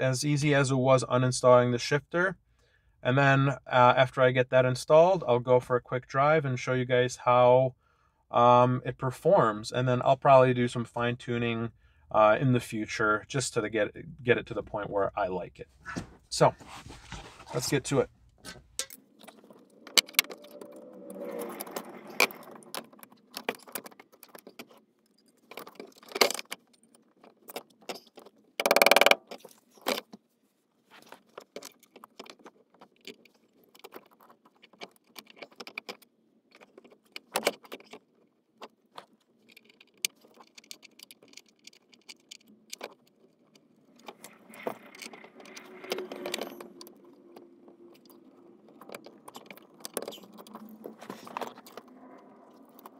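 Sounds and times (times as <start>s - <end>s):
metal parts clattering: 18.4s - 20.6s, 21.3s - 28.4s
metallic clicks and rattles of tools: 18.4s - 30.1s, 31.2s - 52.9s.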